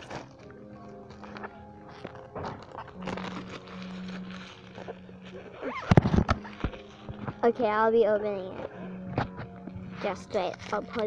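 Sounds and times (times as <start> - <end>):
plastic wrap crinkling: 0.0 - 11.0
quiet background music: 0.0 - 11.0.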